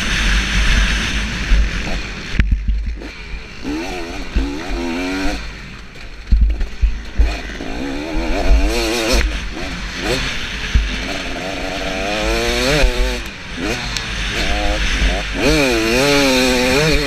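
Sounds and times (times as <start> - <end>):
motocross engine revving: 0.0 - 17.0
low thumps: 0.6 - 3.1, 6.2 - 9.6
wind rush on microphone: 6.2 - 11.2.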